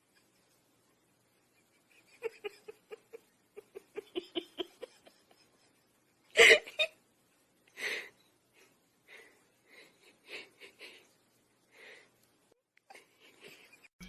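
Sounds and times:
person giggling and laughing: 0:01.5 - 0:07.0, 0:12.8 - 0:14.0.

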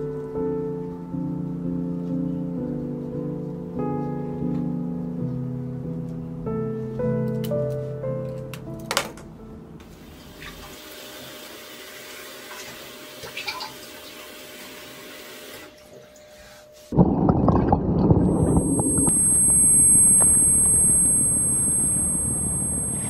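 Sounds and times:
high ringing tone: 0:18.2 - 0:23.0.

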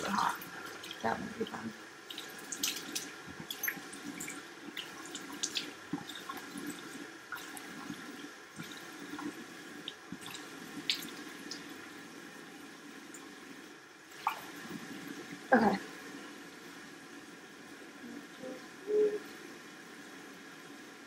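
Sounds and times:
tap water running: 0:00.0 - 0:15.5
water splashing on face: 0:02.1 - 0:11.7.

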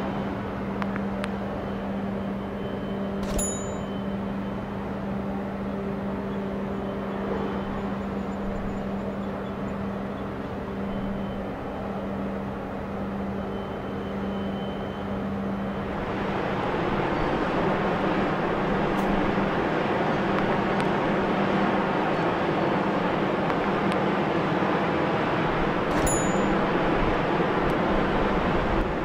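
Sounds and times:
distant port noise: 0:00.0 - 0:29.0
machinery engine drone: 0:00.0 - 0:29.0
sharp click: 0:03.2 - 0:03.6, 0:25.9 - 0:26.6.

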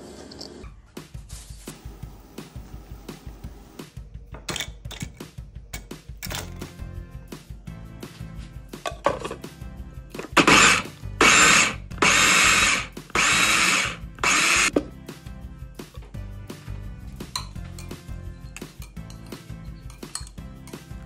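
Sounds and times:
food chopper motor whirring: 0:10.2 - 0:14.7.

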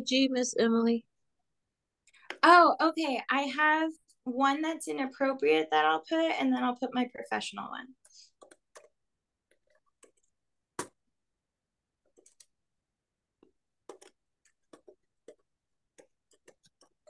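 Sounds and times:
typing on a keyboard: 0:08.4 - 0:10.3, 0:12.1 - 0:12.5, 0:13.9 - 0:17.0.

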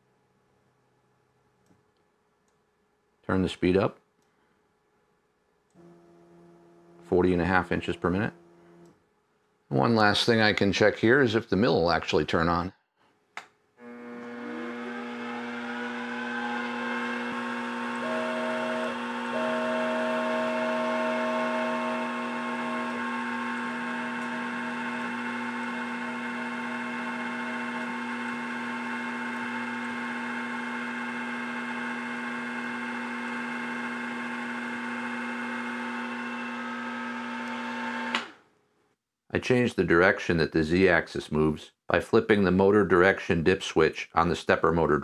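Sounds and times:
milling machine spindle whine: 0:13.8 - 0:38.2.

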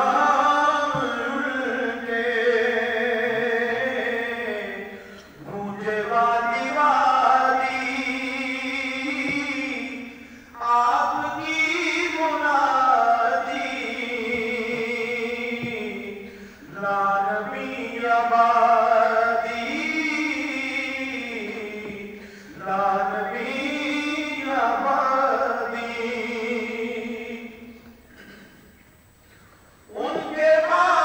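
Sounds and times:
solo voice chanting: 0:29.9 - 0:31.0.

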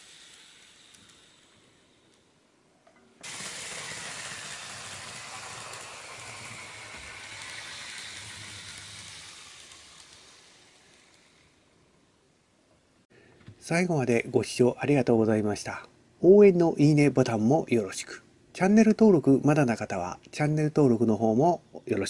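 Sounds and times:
model train hissing rush: 0:00.0 - 0:01.9, 0:03.2 - 0:11.7.

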